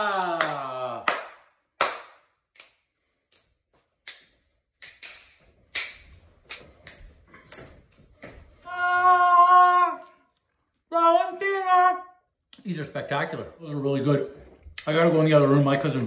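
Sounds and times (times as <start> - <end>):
hands clapping: 0.0 - 8.4.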